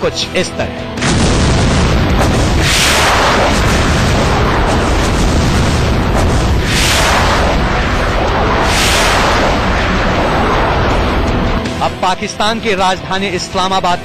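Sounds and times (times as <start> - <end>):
continuous deep rumble: 1.0 - 12.2
loud explosions: 1.0 - 12.2.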